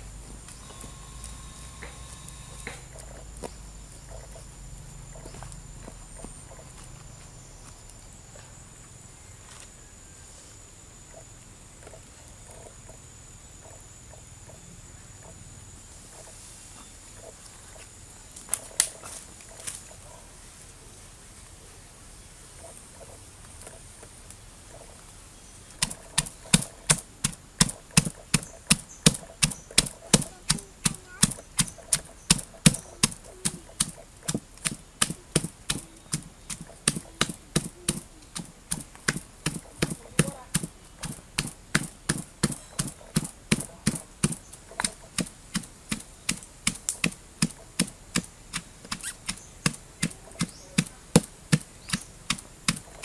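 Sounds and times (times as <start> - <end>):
pestle pounding in stone mortar: 25.8 - 53.0.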